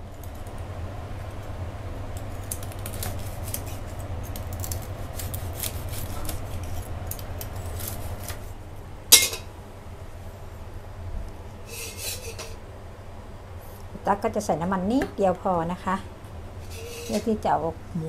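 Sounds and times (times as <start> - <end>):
knife crunching crispy skin: 2.1 - 8.5.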